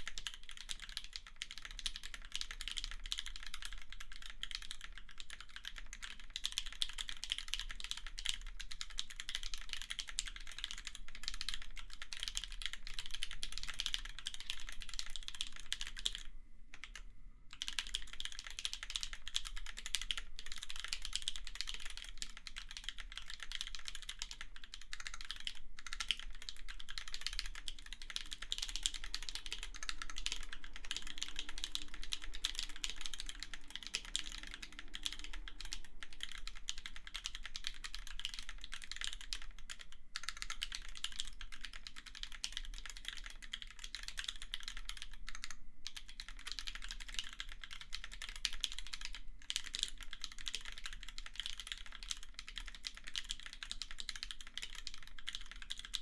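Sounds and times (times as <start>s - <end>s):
fast typing on keyboard: 0.0s - 56.0s.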